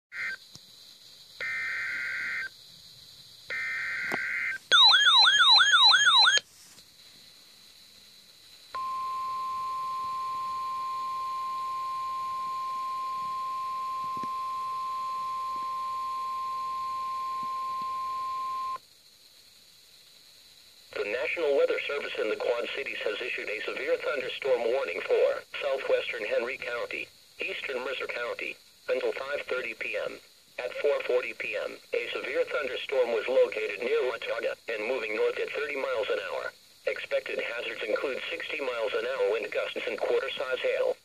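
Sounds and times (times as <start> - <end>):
screechy digital data bursts: 0.1 - 0.4, 1.4 - 2.5, 3.5 - 6.4
steady alarm tone: 1.4 - 2.5, 3.5 - 6.4, 8.8 - 18.8.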